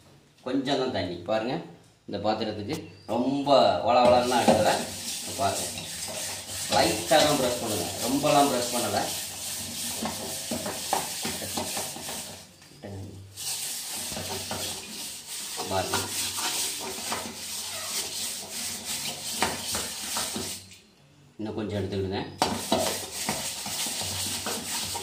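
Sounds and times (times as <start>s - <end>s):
scrubber scouring metal pot: 4.0s - 12.6s, 13.3s - 20.7s, 22.4s - 25.0s.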